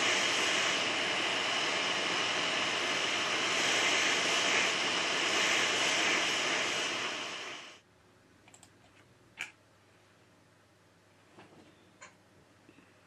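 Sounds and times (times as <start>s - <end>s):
hot air blower hissing: 0.0s - 7.8s.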